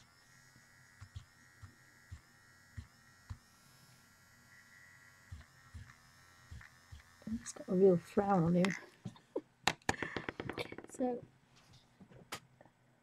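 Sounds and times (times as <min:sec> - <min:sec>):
faint electrical buzz with whine: 0:00.0 - 0:09.6.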